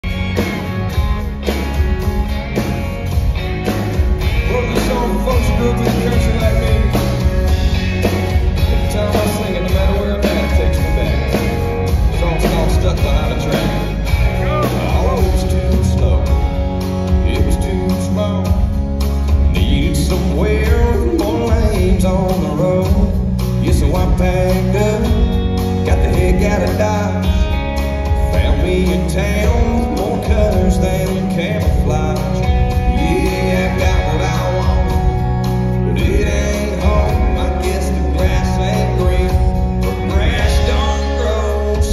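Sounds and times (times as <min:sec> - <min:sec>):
drum beat: 0:00.0 - 0:27.0
heavy bass: 0:00.0 - 0:41.9
strummed acoustic guitar: 0:00.0 - 0:41.9
man singing: 0:03.3 - 0:41.9.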